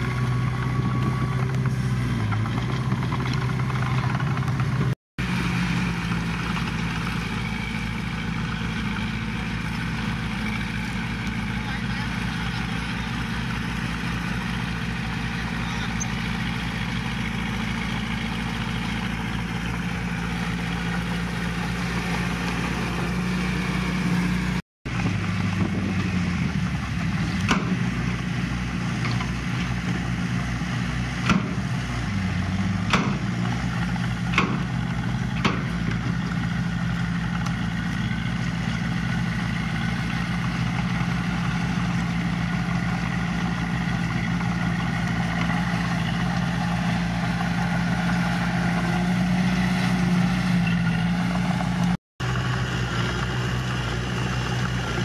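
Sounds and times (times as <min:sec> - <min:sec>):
diesel engine running: 0:00.0 - 0:55.0
sharp knocks: 0:31.2 - 0:31.6, 0:32.9 - 0:33.3, 0:34.3 - 0:34.7, 0:35.4 - 0:35.8.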